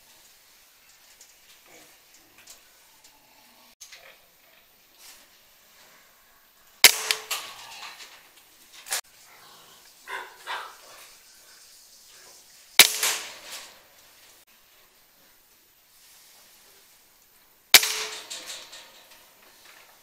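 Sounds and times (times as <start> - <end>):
air rifle shots: 6.8 - 7.6, 12.8 - 13.8, 17.7 - 18.8.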